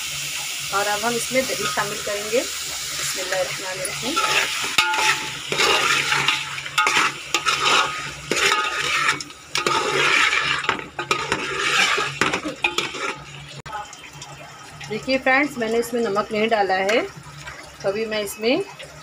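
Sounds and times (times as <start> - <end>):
food sizzling in a pot: 0.0 - 14.2
metal ladle scraping a pot: 3.0 - 13.5.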